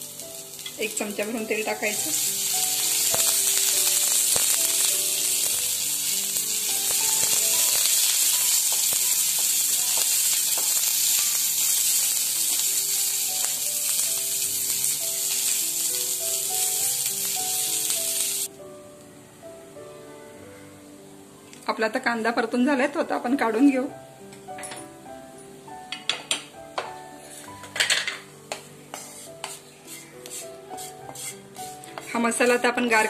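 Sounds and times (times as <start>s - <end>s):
onions sizzling in oil: 0.0s - 18.5s, 28.9s - 33.0s
spatula tapping pan: 28.5s - 32.7s.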